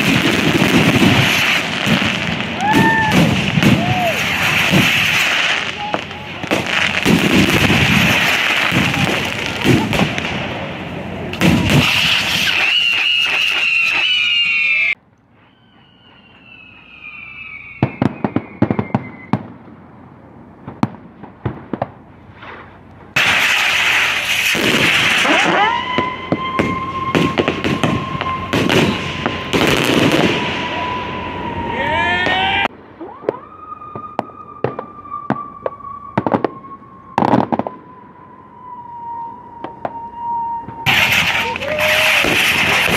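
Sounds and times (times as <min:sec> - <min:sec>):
falling firework whistles: 0:00.0 - 0:10.3, 0:11.4 - 0:19.6, 0:22.3 - 0:32.7, 0:33.3 - 0:42.9
sharp firework bangs: 0:00.0 - 0:14.9, 0:15.9 - 0:19.7, 0:20.6 - 0:31.0, 0:40.6 - 0:42.9
firework rockets crackling: 0:00.0 - 0:20.0, 0:20.6 - 0:37.8, 0:39.6 - 0:42.9
steady high whistle: 0:11.6 - 0:19.4, 0:25.4 - 0:32.7, 0:33.6 - 0:42.3.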